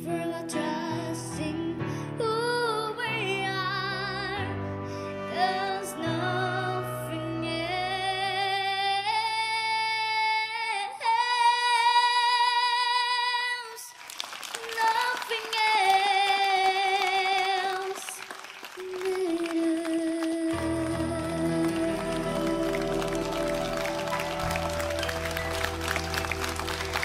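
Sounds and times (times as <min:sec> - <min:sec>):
girl singing: 0:00.0 - 0:04.6, 0:05.3 - 0:13.9, 0:14.6 - 0:18.2, 0:18.8 - 0:23.3
quiet musical backing: 0:20.5 - 0:27.0.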